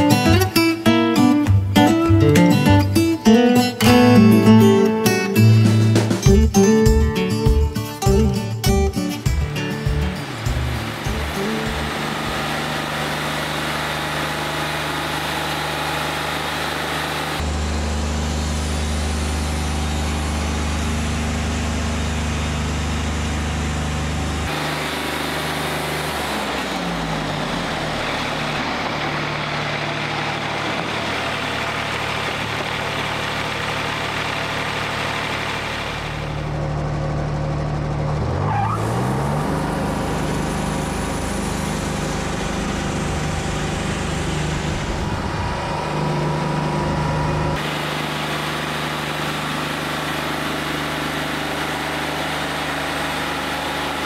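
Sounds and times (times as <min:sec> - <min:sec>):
diesel engine running: 0:00.0 - 0:54.0
band saw cutting wood: 0:09.5 - 0:17.5.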